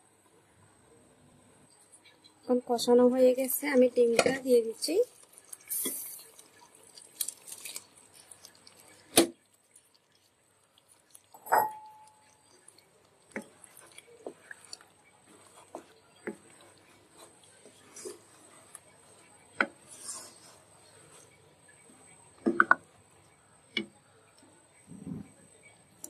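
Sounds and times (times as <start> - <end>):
spatula stirring in thick gravy: 3.3 - 24.9
utensil clink with ringing tone: 11.4 - 12.3.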